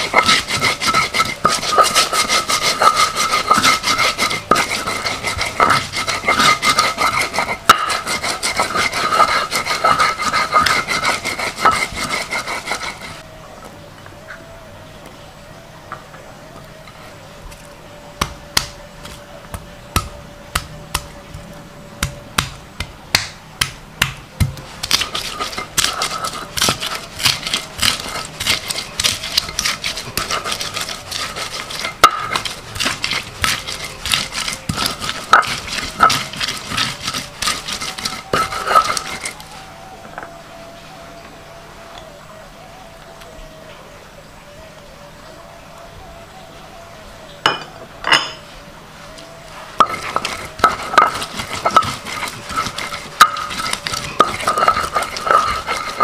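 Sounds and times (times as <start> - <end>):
stone scraping grinds: 0.0 - 13.2, 24.7 - 39.6, 49.6 - 56.0.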